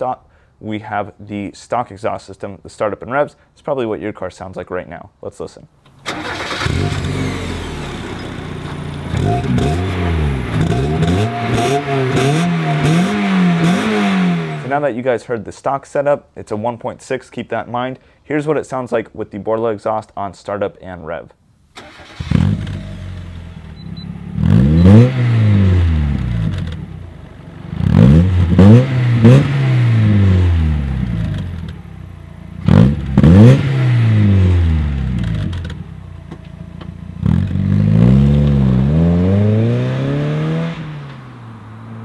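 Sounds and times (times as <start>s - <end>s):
car engine starting and revving: 6.0s - 14.8s, 21.8s - 42.0s.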